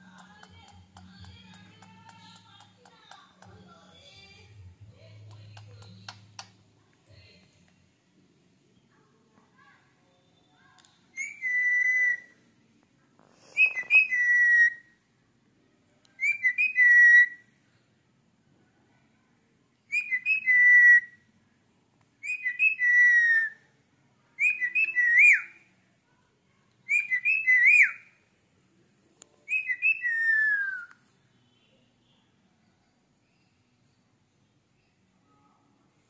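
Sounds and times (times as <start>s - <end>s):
parakeet whistling: 11.2s - 12.3s, 13.6s - 14.8s.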